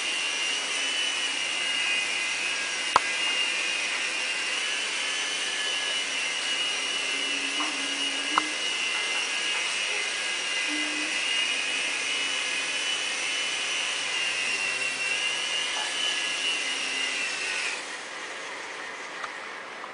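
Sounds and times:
toy helicopter motor whine: 0.0s - 19.9s.

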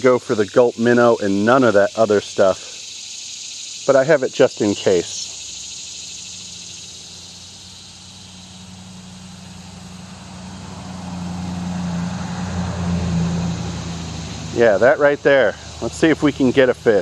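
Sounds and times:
insects trilling: 0.0s - 17.0s
low engine hum: 5.4s - 17.0s.

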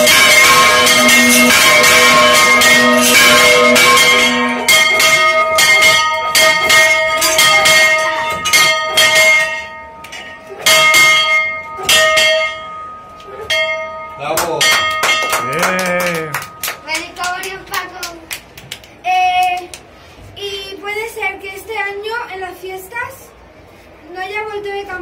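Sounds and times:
church bells ringing: 0.0s - 16.9s.

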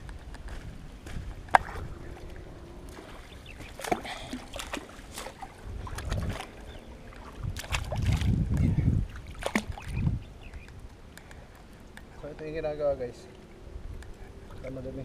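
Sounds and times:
wind rumble on microphone: 0.0s - 11.0s, 13.0s - 15.0s
water splashing and dripping: 1.5s - 12.1s.

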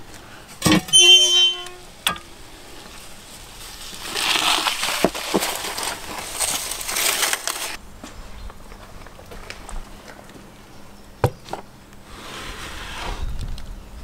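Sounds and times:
foil tray scraping on brick: 3.8s - 7.8s.

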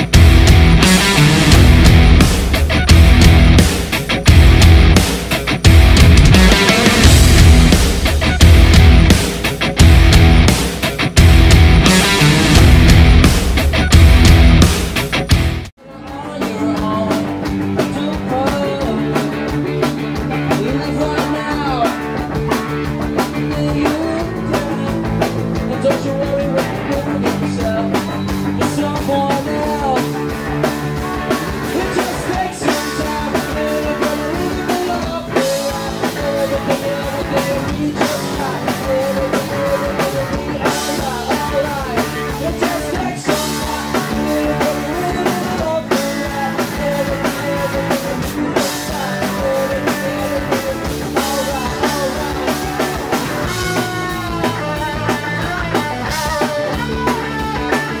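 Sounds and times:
bass guitar: 0.0s - 58.0s
drum kit: 0.0s - 58.0s
electric guitars: 0.0s - 58.0s
lead singer singing: 15.8s - 58.0s.

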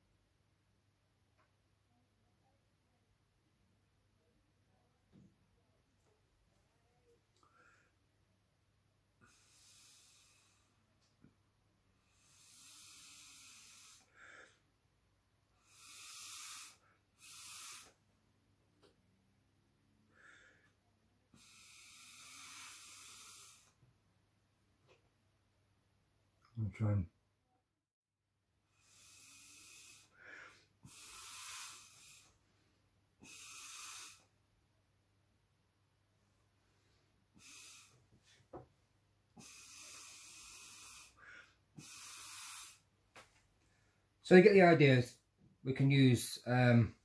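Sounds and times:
blowing air through a straw: 15.6s - 18.0s, 21.3s - 23.8s, 28.8s - 32.4s, 39.4s - 42.8s.

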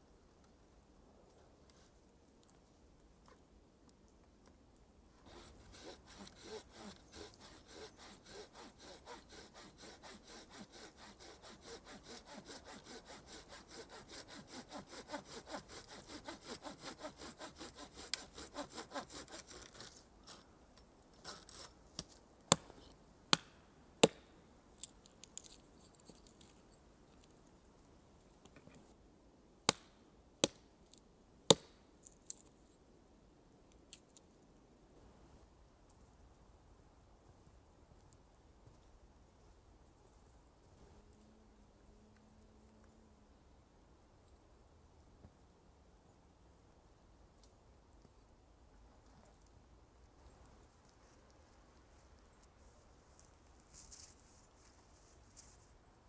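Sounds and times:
hand saw cutting branch: 5.3s - 19.9s
hatchet striking wood: 23.3s - 24.2s, 31.5s - 31.8s.

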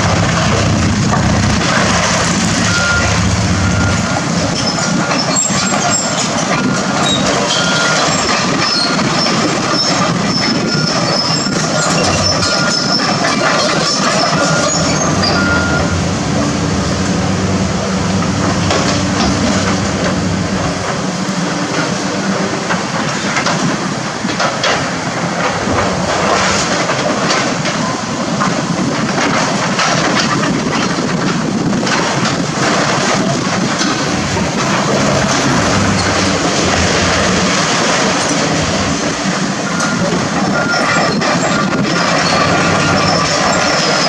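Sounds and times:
diesel engine running: 0.0s - 29.3s, 30.1s - 44.0s
crunching and clattering debris: 28.4s - 44.0s.

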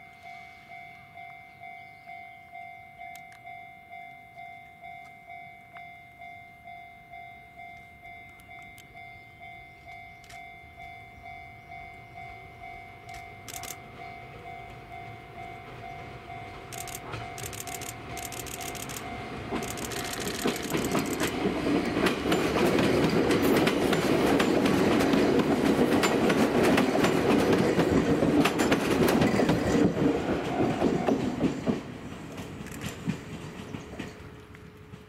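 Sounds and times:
level crossing warning bell: 0.0s - 21.5s
train rumble: 9.8s - 35.0s
wheels clicking on track: 13.1s - 35.0s.

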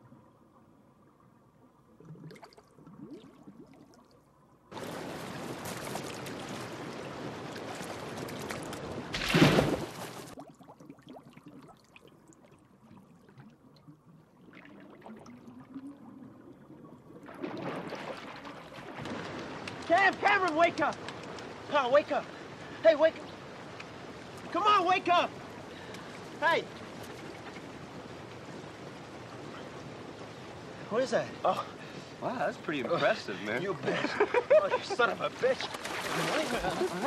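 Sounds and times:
rushing water: 0.0s - 37.0s
person splashing into pool: 4.7s - 11.3s, 17.2s - 19.8s, 35.6s - 37.0s.

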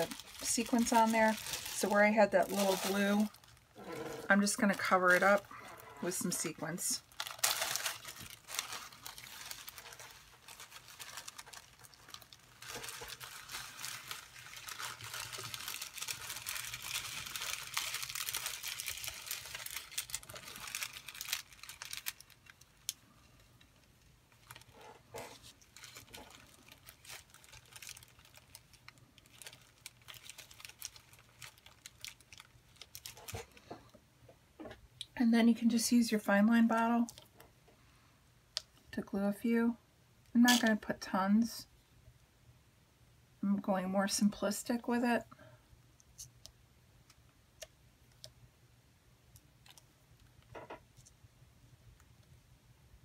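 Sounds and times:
plastic bag of sequins crinkling: 0.0s - 33.6s.

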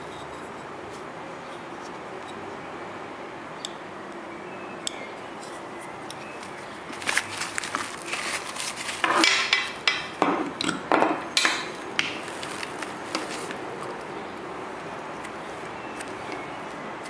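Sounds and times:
fabric cuff and tubing rustling: 6.4s - 9.4s.

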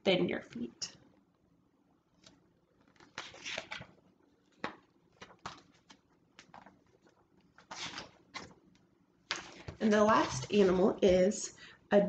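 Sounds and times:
book pages turning: 2.2s - 11.2s.

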